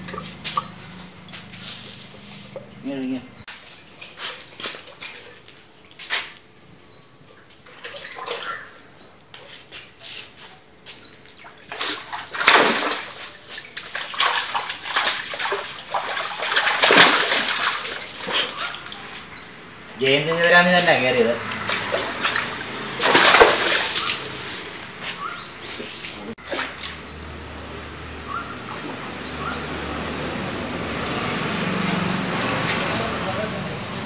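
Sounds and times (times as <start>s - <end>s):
quiet water sounds: 7.1s - 9.5s
fish thrashing in a net: 11.7s - 19.0s, 21.5s - 24.9s
loud water splashing: 11.7s - 19.1s, 20.2s - 24.9s.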